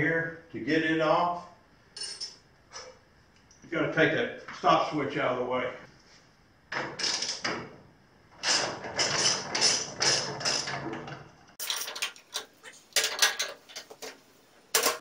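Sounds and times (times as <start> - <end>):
hand tool loosening bolts: 8.4 - 14.1.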